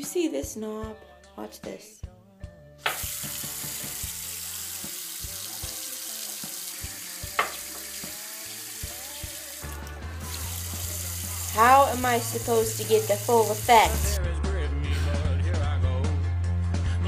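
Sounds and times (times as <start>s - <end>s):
tap handle sharp sound: 2.8s - 3.1s, 7.4s - 7.8s
tap water running into basin: 2.9s - 14.2s.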